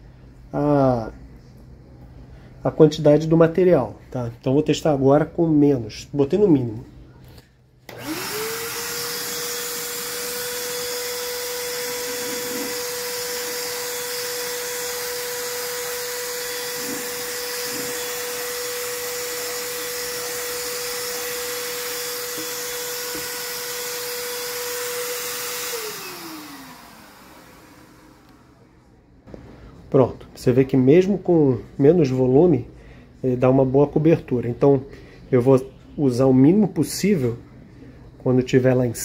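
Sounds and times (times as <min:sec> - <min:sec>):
paint spray gun motor whining: 0:07.9 - 0:28.6.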